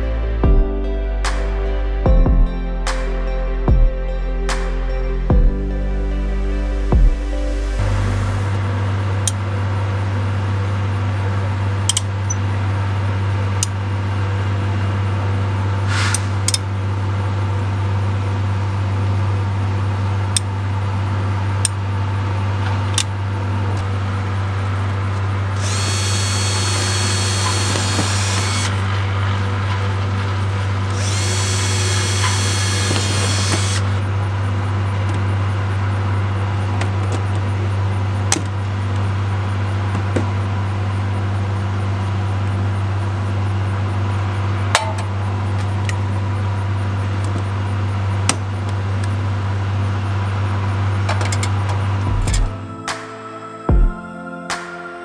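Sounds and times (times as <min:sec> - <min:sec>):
steady low drone: 0:00.0 - 0:55.0
power drill drilling into metal: 0:25.6 - 0:28.8, 0:30.9 - 0:33.9.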